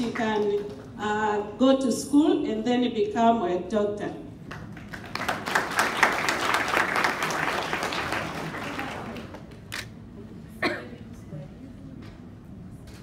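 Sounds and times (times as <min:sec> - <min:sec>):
audience applause: 0:04.5 - 0:09.6.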